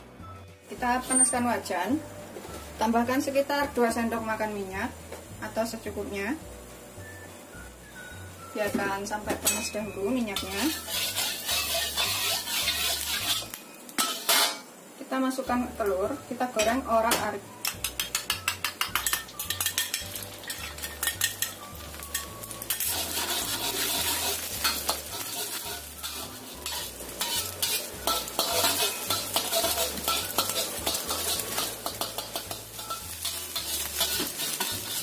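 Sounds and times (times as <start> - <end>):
utensil scraping a wok: 9.4 - 14.7, 17.7 - 35.0
egg sizzling in hot oil: 9.4 - 14.9, 17.6 - 35.0
utensil clicking against pan: 17.6 - 23.9, 24.6 - 35.0.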